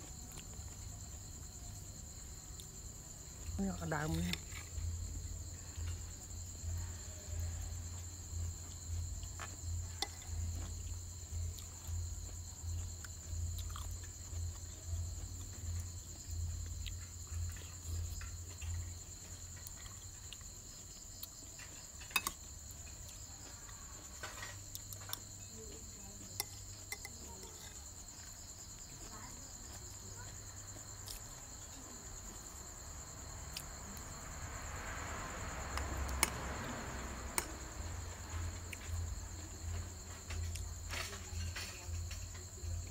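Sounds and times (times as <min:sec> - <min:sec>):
crickets chirping: 0:00.0 - 0:42.9
metal spoon clinking bowl: 0:26.4 - 0:27.7.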